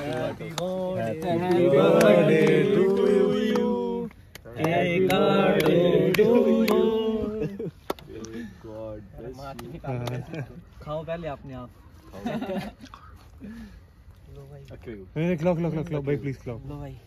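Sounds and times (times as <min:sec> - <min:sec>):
men singing together: 0:00.0 - 0:07.7
hand claps: 0:00.0 - 0:08.4, 0:09.4 - 0:10.4.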